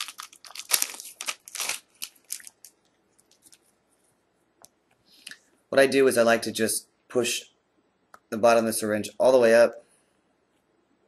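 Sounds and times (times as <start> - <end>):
paper and plastic pack tearing: 0.0 - 3.6.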